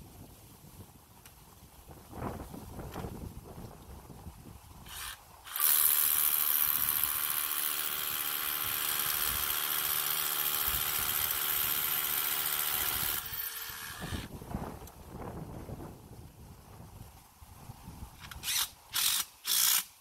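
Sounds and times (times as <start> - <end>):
hammer drill boring into concrete: 4.9 - 14.3, 18.3 - 19.9.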